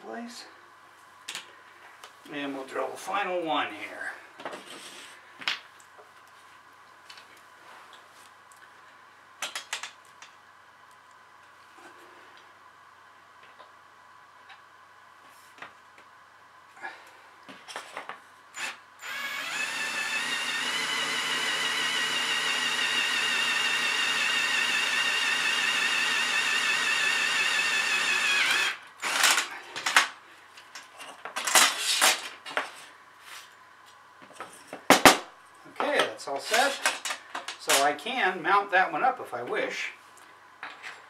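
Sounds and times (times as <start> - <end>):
cordless drill whining through metal: 18.6 - 29.5.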